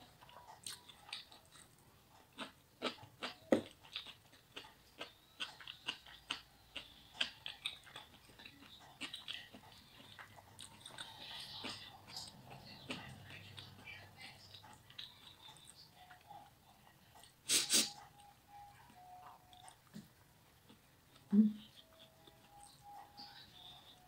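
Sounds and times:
wet chewing mouth sounds: 0:00.0 - 0:18.3.

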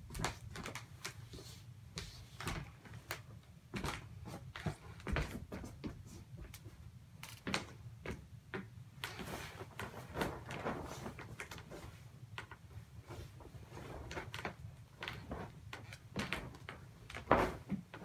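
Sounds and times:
bedsheet rustling: 0:00.0 - 0:08.3, 0:09.0 - 0:18.0
handling knocks and thuds: 0:16.1 - 0:18.0.

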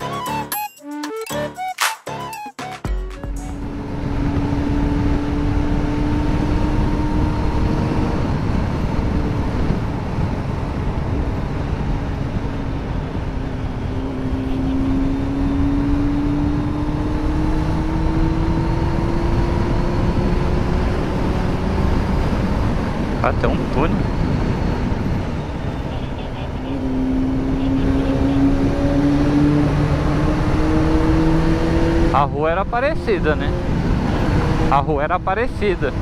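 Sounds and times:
wind and road noise: 0:03.4 - 0:36.0.

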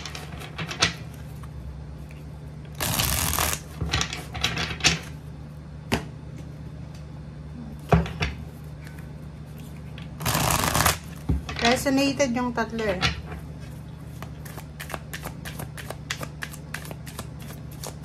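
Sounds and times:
low steady hum: 0:00.0 - 0:18.0
cards being shuffled: 0:02.8 - 0:03.8, 0:08.7 - 0:11.3, 0:13.6 - 0:18.0.

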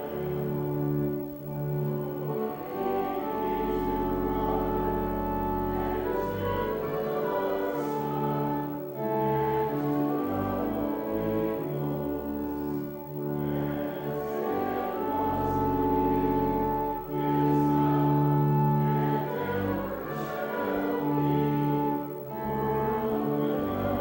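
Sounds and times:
church organ chords: 0:00.0 - 0:24.0.

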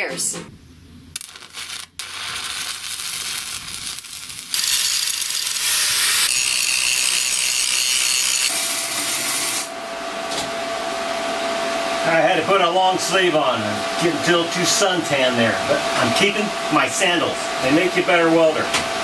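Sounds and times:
arc welding hiss: 0:01.2 - 0:09.7.

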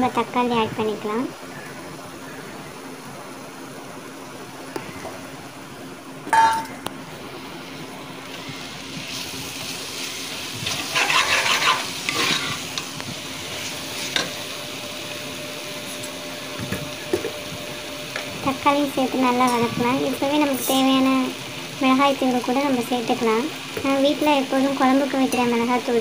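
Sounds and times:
food sizzling in pot: 0:07.4 - 0:26.0
spoon scraping pot: 0:10.7 - 0:12.6.

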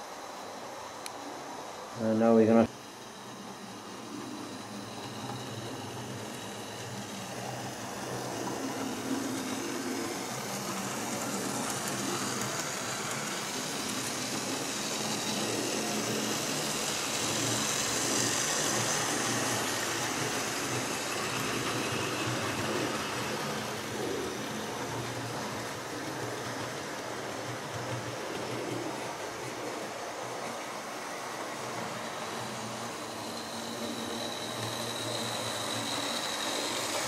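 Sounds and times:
model train motor whirring: 0:02.1 - 0:37.0.

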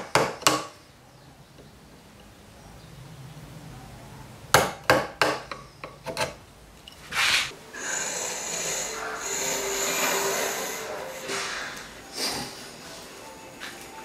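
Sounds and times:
steady hiss: 0:06.9 - 0:14.0.

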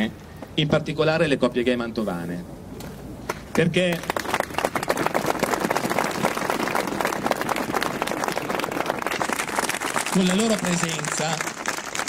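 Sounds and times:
crowd applauding: 0:03.3 - 0:12.0.

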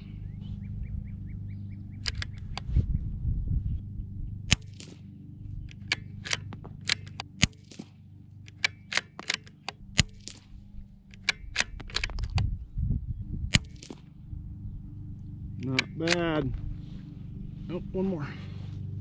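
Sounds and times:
rifle bolt clicking: 0:02.0 - 0:02.7, 0:04.5 - 0:05.0, 0:05.6 - 0:12.5, 0:13.5 - 0:14.0, 0:15.6 - 0:16.3
rifle shots: 0:04.5 - 0:05.1, 0:05.7 - 0:12.4, 0:13.5 - 0:14.1, 0:15.6 - 0:16.4.

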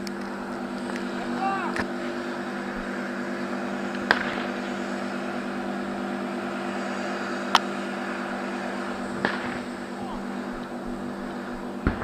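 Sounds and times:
vehicle engine droning: 0:00.0 - 0:12.0
gunshot: 0:09.2 - 0:09.6.

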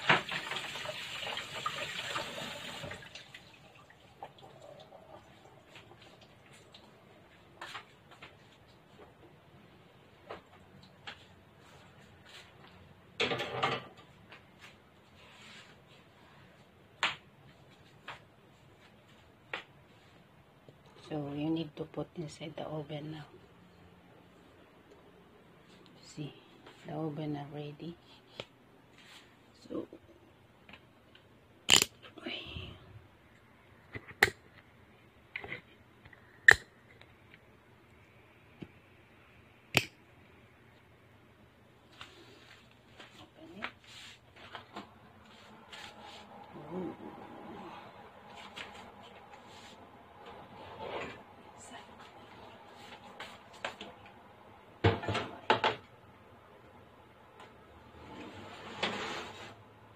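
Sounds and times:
faint low hum: 0:17.4 - 0:59.9.

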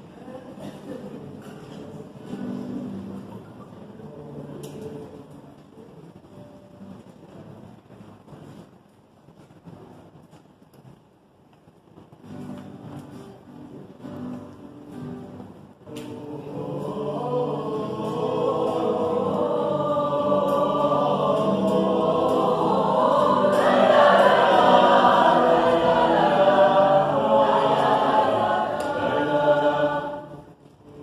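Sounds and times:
mixed choir singing: 0:15.9 - 0:30.6.

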